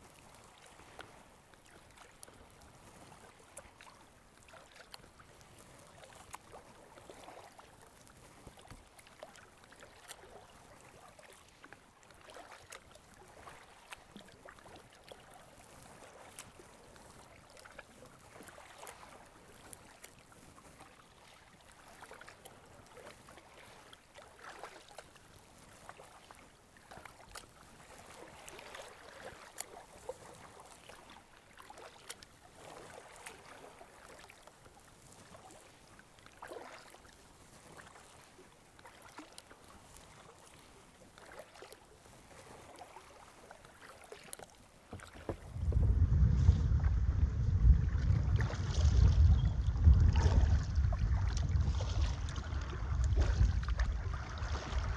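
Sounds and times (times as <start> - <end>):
river water lapping around kayak: 0.0 - 54.9
small water drips: 42.7 - 45.9, 46.8 - 54.9.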